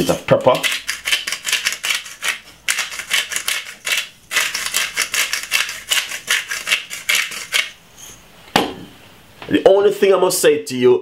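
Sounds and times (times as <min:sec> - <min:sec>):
pepper grinder crunching peppercorns: 0:00.0 - 0:07.8.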